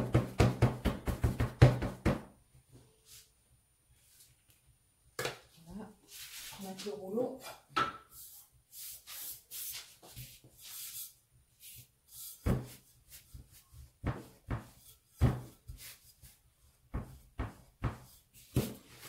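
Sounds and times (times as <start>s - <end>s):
rolling pin swishing on dough: 6.0s - 7.1s, 8.0s - 19.0s.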